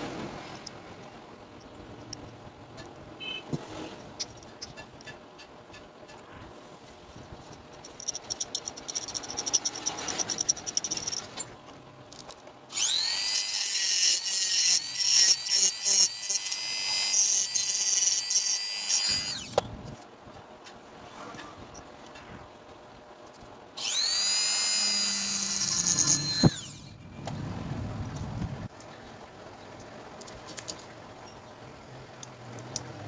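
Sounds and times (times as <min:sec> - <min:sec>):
clicking and rattling of handling: 0:07.3 - 0:12.6, 0:29.8 - 0:31.4
electric drill whining: 0:12.7 - 0:19.6, 0:23.8 - 0:26.9.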